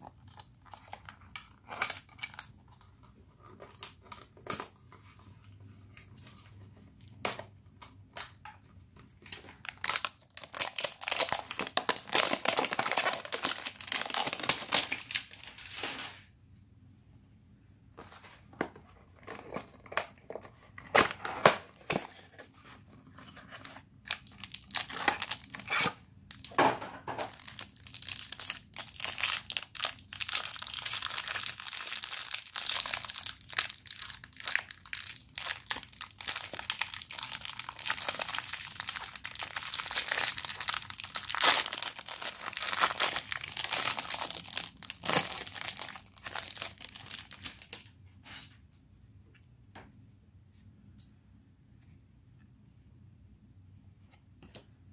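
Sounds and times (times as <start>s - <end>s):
cellophane crinkling: 9.1s - 16.2s, 23.2s - 48.0s
cellophane tearing: 27.3s - 47.8s.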